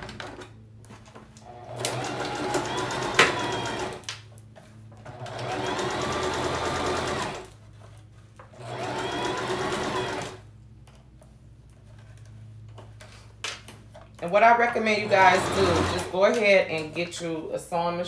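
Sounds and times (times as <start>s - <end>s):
electric sewing machine stitching: 1.4s - 4.1s, 5.0s - 7.5s, 8.5s - 10.4s, 14.7s - 16.4s.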